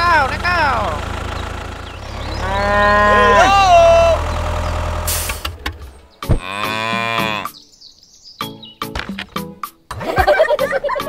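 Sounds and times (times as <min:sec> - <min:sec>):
cow mooing: 0:02.3 - 0:04.3, 0:06.3 - 0:07.6.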